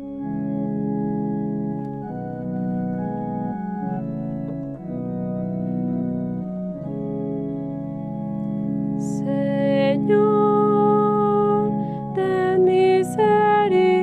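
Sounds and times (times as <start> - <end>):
organ playing held chords: 0.0 - 14.0.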